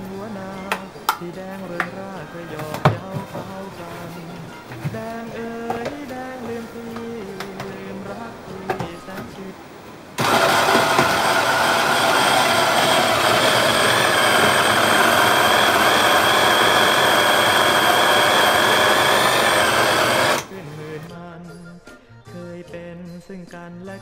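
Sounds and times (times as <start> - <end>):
mini chopper motor whining: 10.2 - 20.6.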